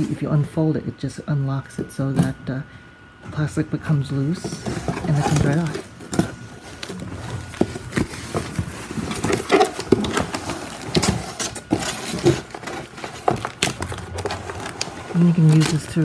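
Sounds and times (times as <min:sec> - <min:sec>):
cardboard scraping and rustling: 0:03.9 - 0:16.0
plastic film rustling: 0:04.3 - 0:16.0.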